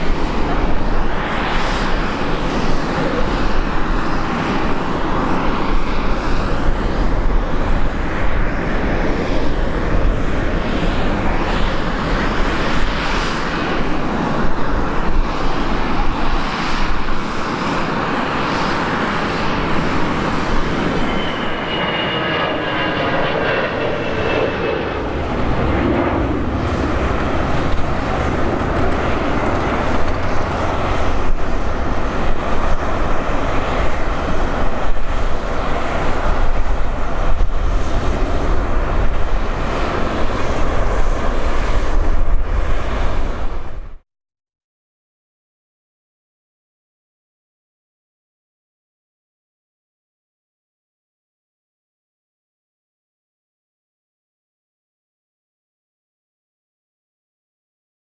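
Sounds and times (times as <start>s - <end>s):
jet engines rumbling: 0.0s - 44.0s.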